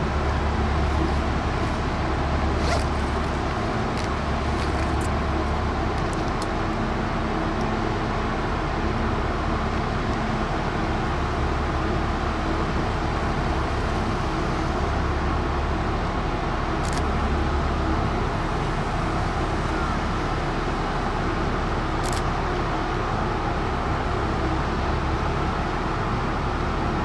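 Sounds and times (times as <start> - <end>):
broad rushing noise: 0.0 - 8.2
ship engines droning: 0.0 - 27.0.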